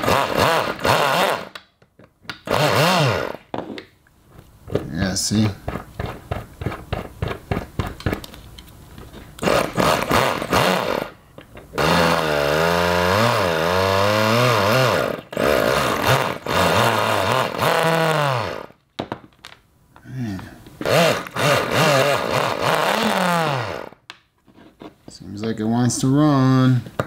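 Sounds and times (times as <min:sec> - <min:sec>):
electric starter motor: 0:00.0 - 0:01.6, 0:02.5 - 0:03.5, 0:09.4 - 0:11.2, 0:11.8 - 0:18.8, 0:20.8 - 0:24.0
rotary engine running: 0:11.8 - 0:18.7.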